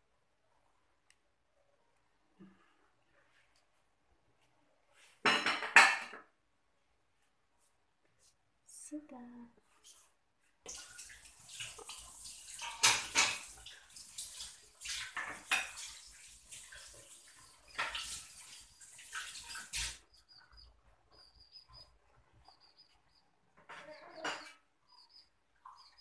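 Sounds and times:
clattering and rustling: 0:11.6 - 0:13.8, 0:15.0 - 0:18.5
bird chirping: 0:18.5 - 0:26.0.

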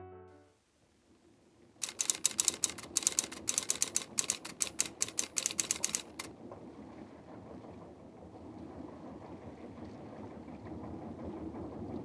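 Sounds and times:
faint steady hiss: 0:00.0 - 0:10.3
typewriter keys clacking: 0:01.8 - 0:06.3.

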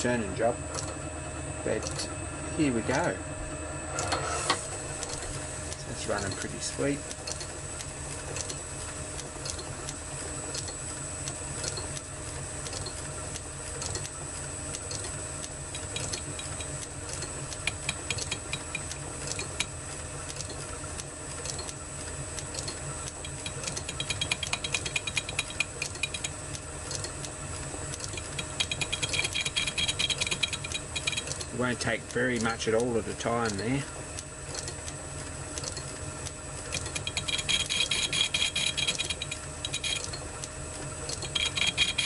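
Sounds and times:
metal lathe humming: 0:00.0 - 0:10.8, 0:14.7 - 0:20.5, 0:21.8 - 0:34.0, 0:35.8 - 0:42.0
rapid ticking of lathe cut: 0:14.8 - 0:20.6, 0:22.5 - 0:33.7, 0:36.7 - 0:40.5, 0:41.1 - 0:42.0.

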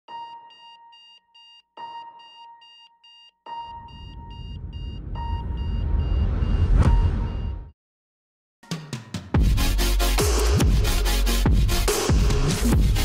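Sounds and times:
rapid high electronic beeps: 0:00.2 - 0:07.7
lower electronic tone: 0:03.6 - 0:07.7
rising whoosh: 0:03.9 - 0:07.5.

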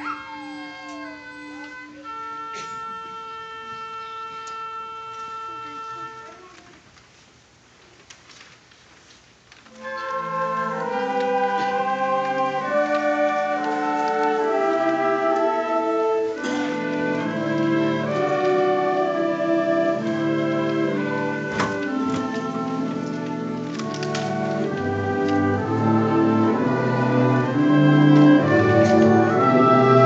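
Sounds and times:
concert band sustained chords: 0:09.7 - 0:30.0.

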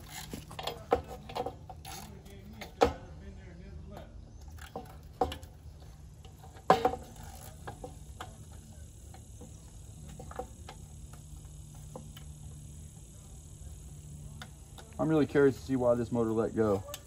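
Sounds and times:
ratchet wrench clicking: 0:00.0 - 0:02.8, 0:06.2 - 0:17.0
metallic clanks: 0:04.4 - 0:08.6.

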